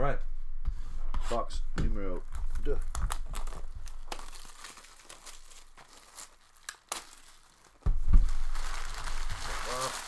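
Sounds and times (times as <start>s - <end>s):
plastic shrink-wrap tearing: 2.3s - 10.0s.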